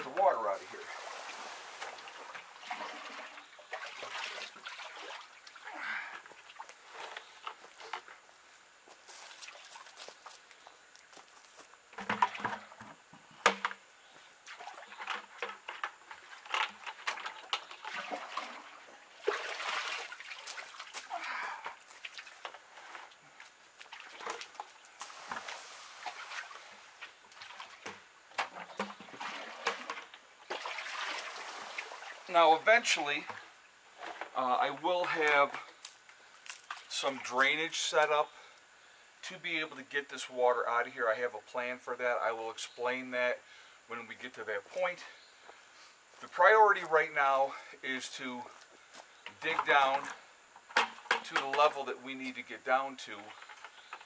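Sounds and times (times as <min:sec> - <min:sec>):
water sloshing into bucket: 0:00.0 - 0:08.1, 0:14.4 - 0:37.6.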